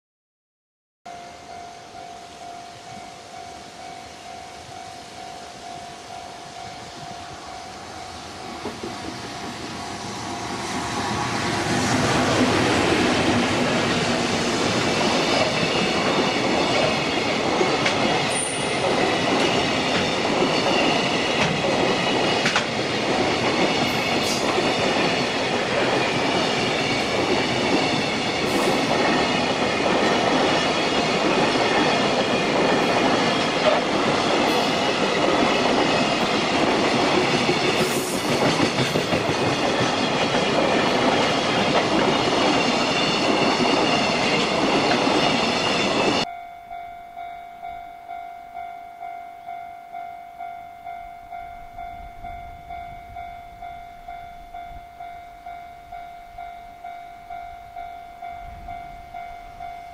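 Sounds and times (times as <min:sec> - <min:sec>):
train wheels rumbling on rail: 0:02.8 - 0:46.3
level crossing bell ringing: 0:45.4 - 0:59.9.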